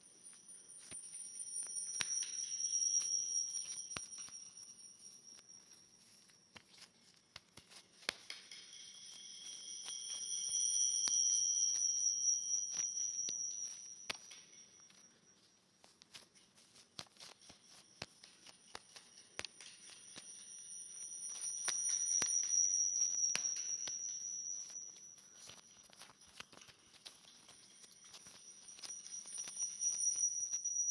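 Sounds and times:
high-pitched feedback whistle: 0:00.8 - 0:06.4, 0:08.4 - 0:15.7, 0:19.8 - 0:26.2, 0:27.2 - 0:30.9.

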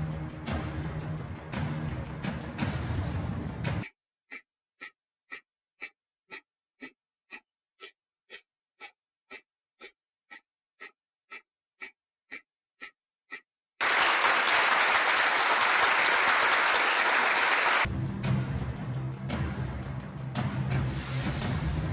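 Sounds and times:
countdown timer ticking: 0:00.0 - 0:13.5, 0:17.8 - 0:21.9
applause sound effect: 0:13.8 - 0:17.9.

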